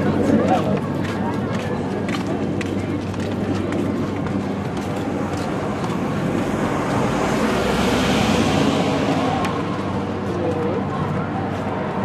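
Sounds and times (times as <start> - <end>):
road traffic noise: 0.0 - 12.0
car passing close by: 6.4 - 9.8.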